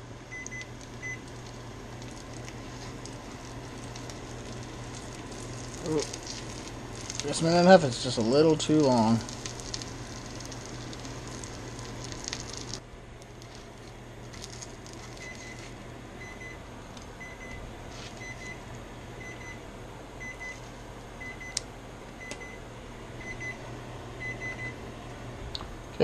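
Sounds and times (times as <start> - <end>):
kitchen timer double beeps: 0.3 - 1.2, 16.2 - 16.6, 17.2 - 17.6, 19.2 - 19.6, 24.2 - 24.8
fish sizzling in a skillet: 2.6 - 7.5, 8.7 - 12.8.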